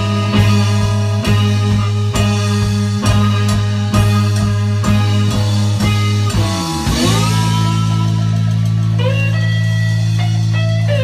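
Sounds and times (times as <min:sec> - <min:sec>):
blues band playing: 0:00.0 - 0:11.0
slide guitar notes: 0:00.0 - 0:11.0.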